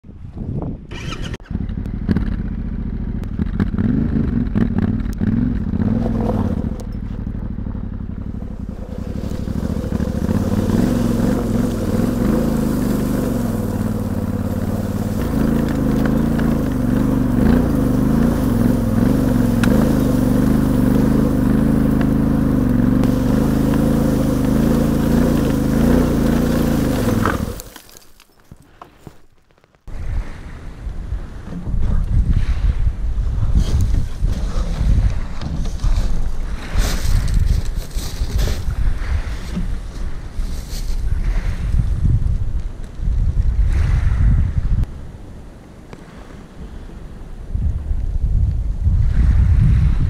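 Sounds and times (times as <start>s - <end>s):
motorcycle engine at low revs: 0.8s - 28.0s, 30.0s - 44.9s
tyres crunching over pebbles: 8.6s - 29.9s.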